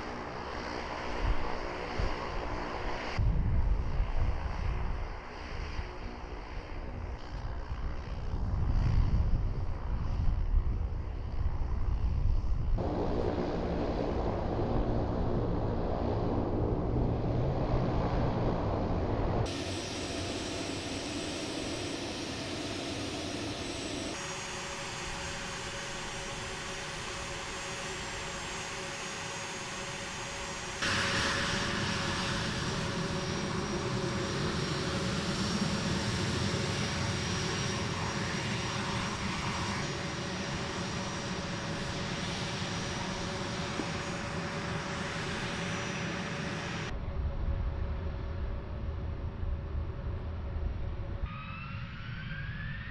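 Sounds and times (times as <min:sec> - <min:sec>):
jet engines whining: 0:12.8 - 0:52.9.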